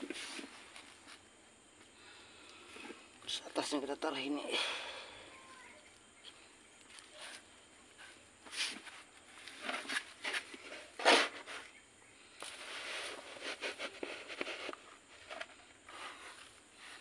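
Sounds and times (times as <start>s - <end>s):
dry soil rustling into plastic pot: 0.0s - 1.3s, 6.8s - 11.8s, 12.4s - 17.0s.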